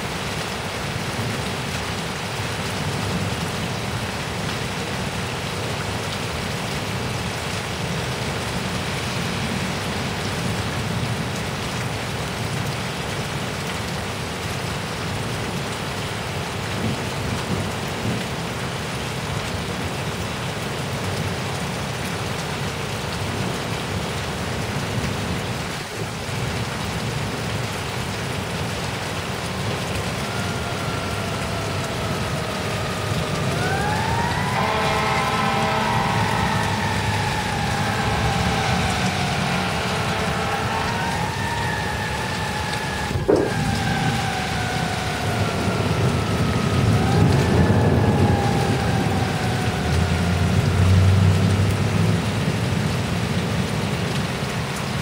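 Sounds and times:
heavy rain pouring: 0.0 - 55.0
wind gusting over microphone: 29.2 - 53.1
siren falling in pitch: 29.3 - 52.2.

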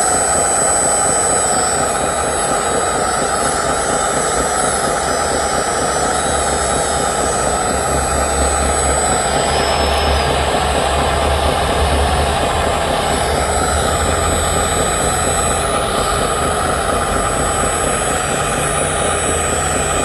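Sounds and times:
model excavator running: 0.0 - 20.0.

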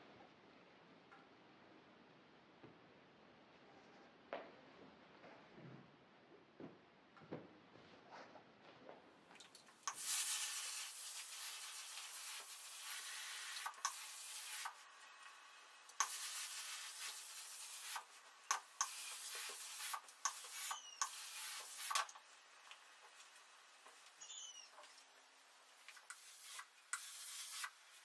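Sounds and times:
iron hissing steam: 9.9 - 14.9, 15.9 - 22.1, 26.0 - 28.0
iron rubbing over shirt: 9.9 - 14.9, 16.0 - 22.1, 26.0 - 28.0.

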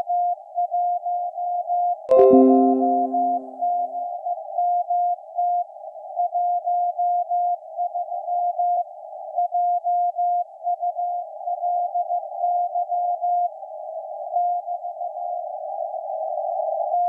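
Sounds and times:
low ringing tone: 2.1 - 3.7.

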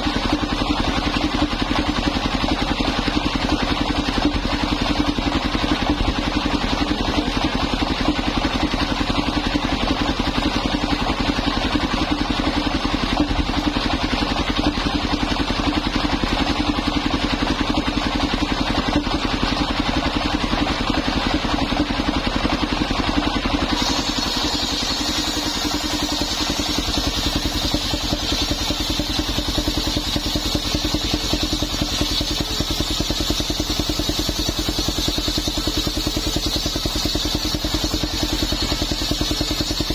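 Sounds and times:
sawmill engine running: 0.0 - 39.9
saw rasping through wood: 23.6 - 39.9.

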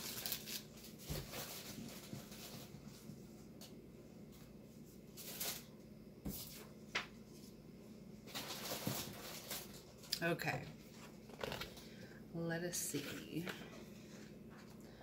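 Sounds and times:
paper and cardboard rustling: 0.0 - 3.1, 8.3 - 10.0.

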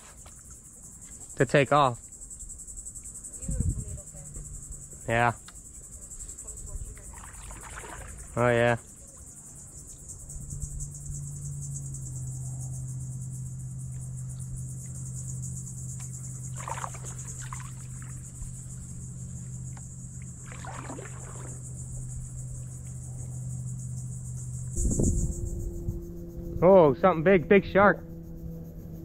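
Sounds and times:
insects buzzing: 0.0 - 29.0
paddle stroke in water: 7.0 - 8.4, 16.4 - 18.8, 19.4 - 22.1
low hum: 9.7 - 29.0.

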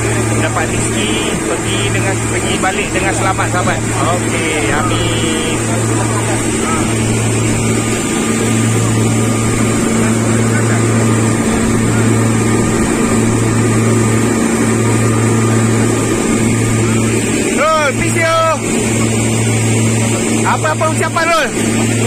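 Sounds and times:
outboard motors droning: 0.0 - 22.0
rush of boat wake: 0.0 - 22.0.

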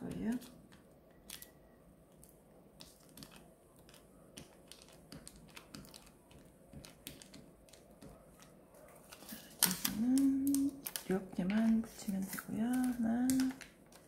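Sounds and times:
paper rustling: 6.8 - 14.0.

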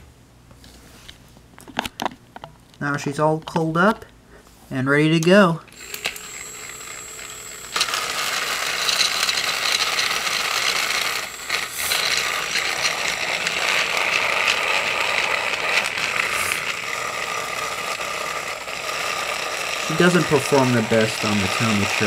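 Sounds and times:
toy train motor whirring rattle: 5.7 - 22.0.

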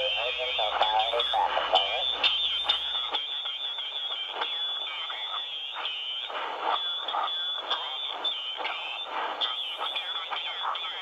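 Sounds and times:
garbled radio voice: 0.0 - 2.2
static crackles: 0.0 - 3.1
steady high-pitched tone: 0.0 - 11.0.

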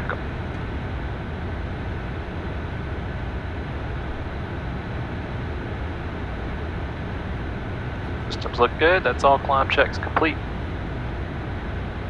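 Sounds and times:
jet cockpit airflow and engine hum: 0.0 - 12.0.

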